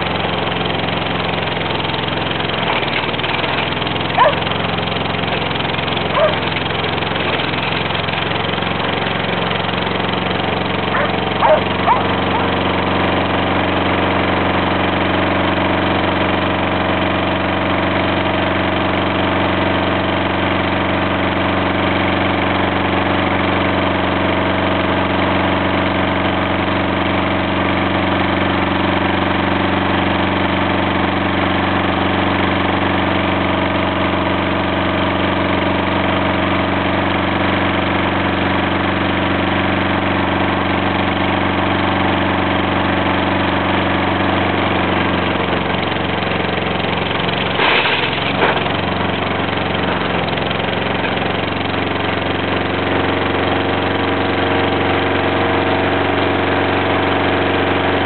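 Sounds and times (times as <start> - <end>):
lawnmower engine running: 0.0 - 58.0.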